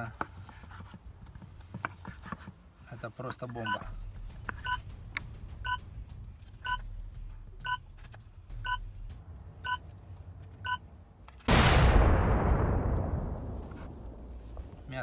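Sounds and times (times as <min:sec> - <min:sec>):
electronic countdown beeps: 0:03.6 - 0:03.9, 0:04.6 - 0:04.8, 0:05.6 - 0:05.9, 0:06.6 - 0:06.8, 0:07.6 - 0:07.8, 0:08.6 - 0:08.9
loud explosion: 0:11.5 - 0:14.8.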